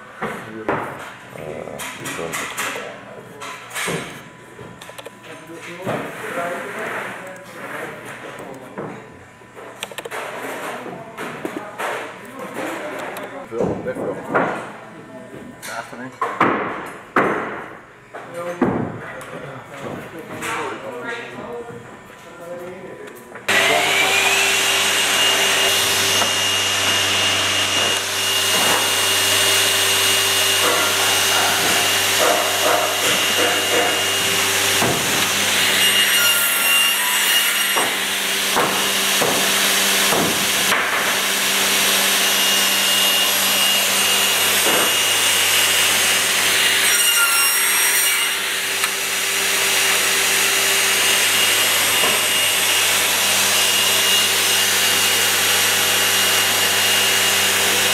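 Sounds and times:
mitre saw whining: 23.5 - 57.9.

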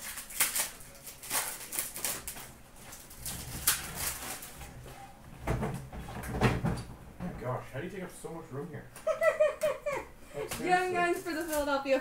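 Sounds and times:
card pack wrappers crinkling: 0.0 - 4.6.

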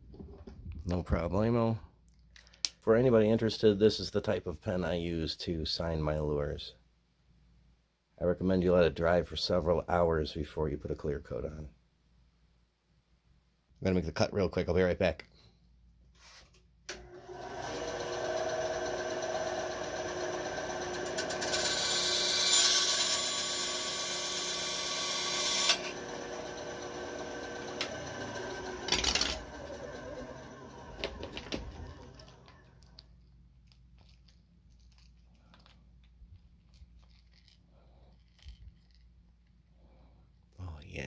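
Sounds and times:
power tool motor whine: 17.1 - 32.7.

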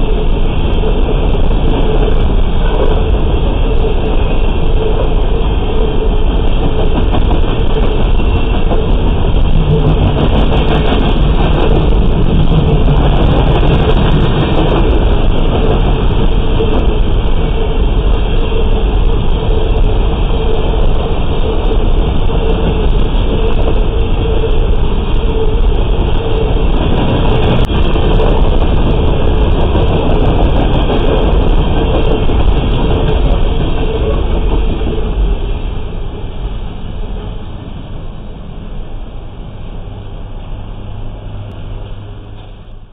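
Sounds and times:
freight train wheels rumbling: 0.0 - 42.9.

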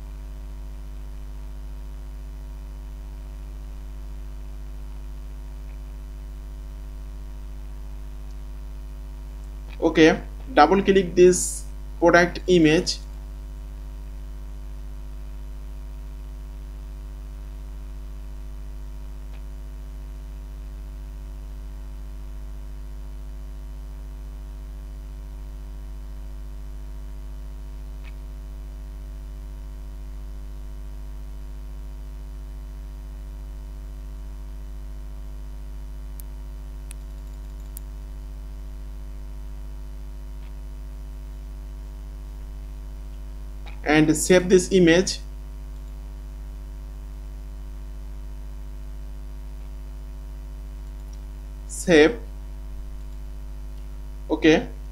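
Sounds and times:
electrical mains hum: 0.0 - 54.9
faint mouse clicks: 36.1 - 38.0, 45.7 - 46.0, 50.8 - 51.3.

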